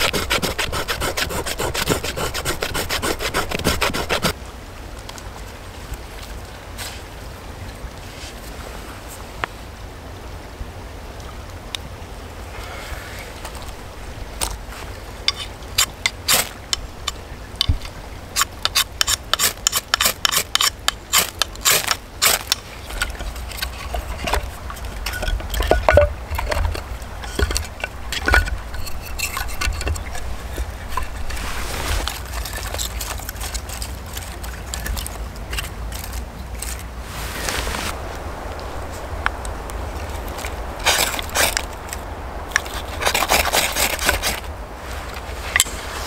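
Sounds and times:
rustling: 0.0 - 4.4, 13.0 - 46.0
wooden sticks clacking: 15.3 - 36.9.

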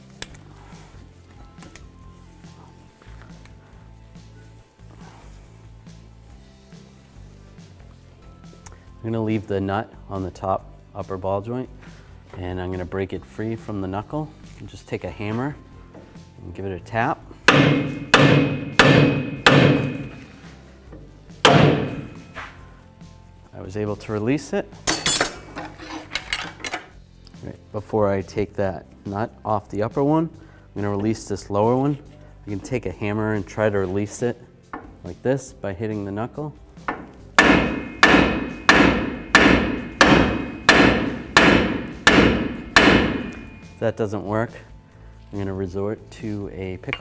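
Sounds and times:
hammer blows on metal: 17.5 - 20.4, 36.9 - 43.8.

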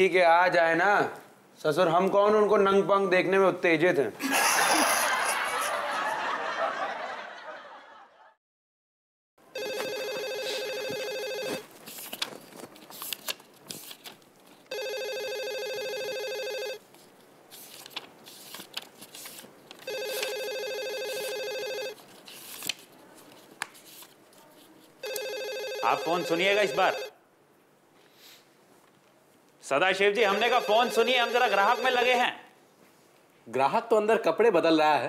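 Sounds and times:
telephone ringing: 9.5 - 11.7, 14.7 - 16.8, 19.8 - 22.0, 25.0 - 27.2, 30.2 - 32.3.

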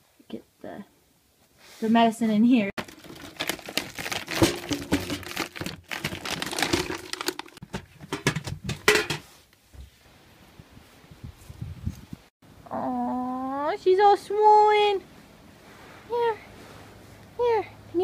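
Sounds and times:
plastic bag crinkling: 2.8 - 7.6.

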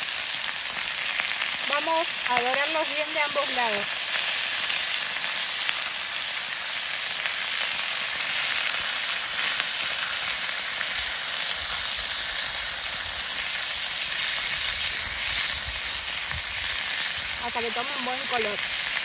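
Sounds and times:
steaks sizzling in a frying pan: 0.0 - 19.0.

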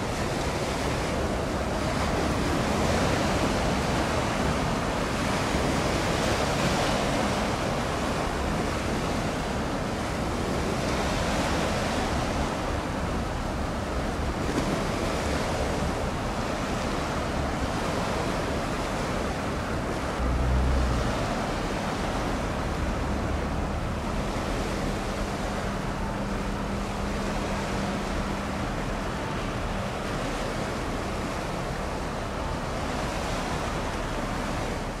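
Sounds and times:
sea waves: 0.0 - 35.0
wind: 0.0 - 35.0.

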